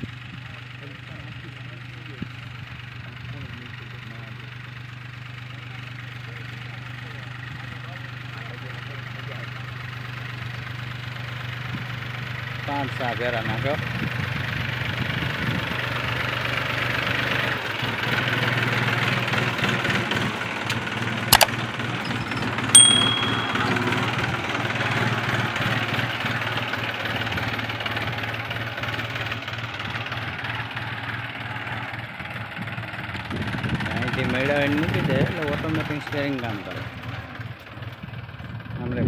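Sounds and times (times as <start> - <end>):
tractor diesel engine under load: 0.0 - 22.7, 24.0 - 39.0
sharp click: 21.4 - 21.6
bell-like ding: 22.1 - 24.4.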